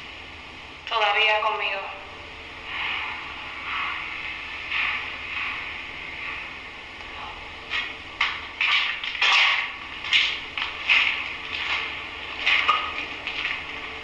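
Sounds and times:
footsteps crunching on gritty concrete: 0:07.7 - 0:13.7.

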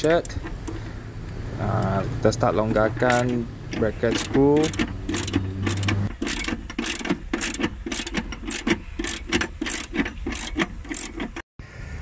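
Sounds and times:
socket ratchet clicking: 0:02.8 - 0:11.3.

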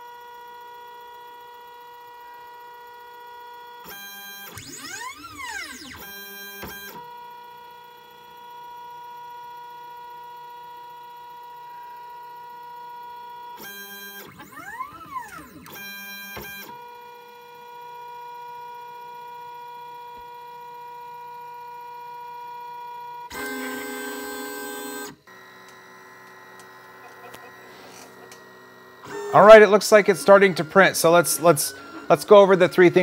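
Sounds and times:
stepper motors whining: 0:04.4 - 0:07.0, 0:23.3 - 0:33.0.

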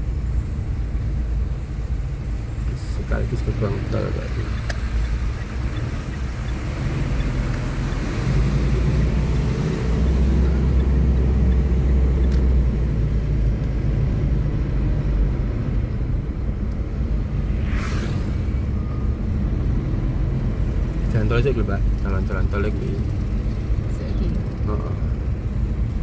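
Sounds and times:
car engine rumble: 0:00.0 - 0:26.0
tyres on wet road: 0:00.0 - 0:26.0.

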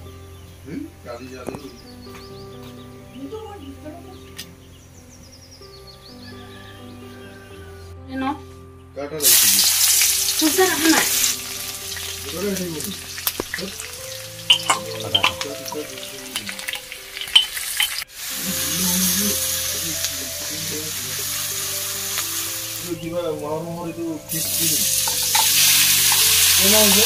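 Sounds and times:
hot oil sizzling: 0:09.2 - 0:27.0
metal spatula scraping a pan: 0:24.9 - 0:27.0.

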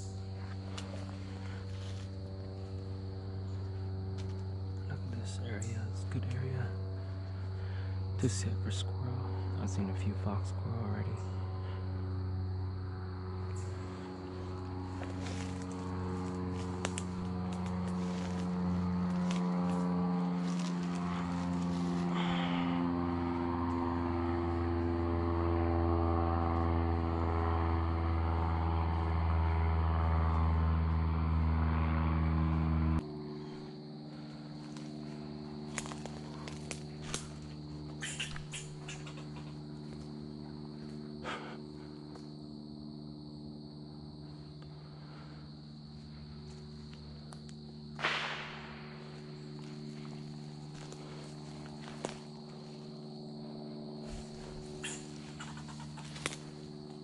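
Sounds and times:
droning hum: 0:00.0 - 0:57.0
high insect drone: 0:00.0 - 0:57.0
footsteps crunching dry leaves: 0:00.3 - 0:03.2, 0:13.8 - 0:22.6, 0:33.5 - 0:38.7, 0:49.0 - 0:53.3, 0:54.0 - 0:57.0
twigs snapping: 0:15.0 - 0:22.1, 0:35.7 - 0:37.4, 0:51.8 - 0:52.2, 0:55.9 - 0:57.0.

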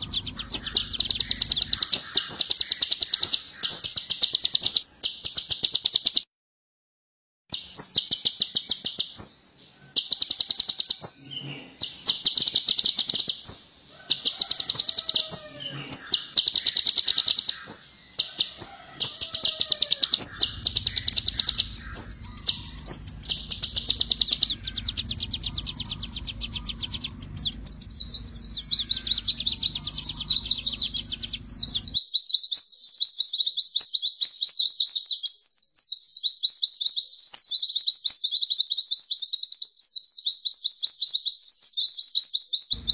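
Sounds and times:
low hum: 0:00.0 - 0:04.0, 0:17.2 - 0:32.0
sunbird singing high trills: 0:00.0 - 0:06.2, 0:07.5 - 0:32.3.

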